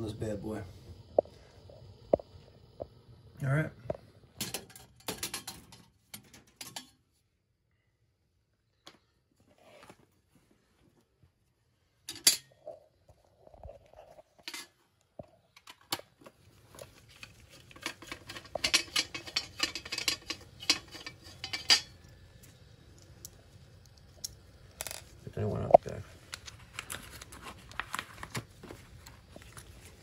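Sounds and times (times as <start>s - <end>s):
rustling of handling: 8.9s - 11.5s, 26.0s - 30.0s.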